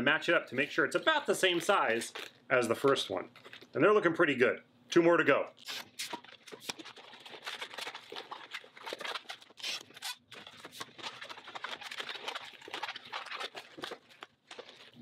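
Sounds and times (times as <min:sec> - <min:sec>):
rubbery balloon squeaks: 0:05.6 - 0:15.0.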